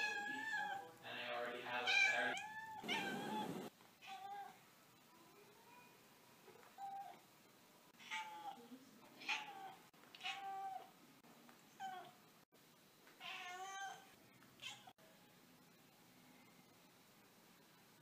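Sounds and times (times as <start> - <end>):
cat meowing: 1.8 - 4.6, 13.2 - 14.9.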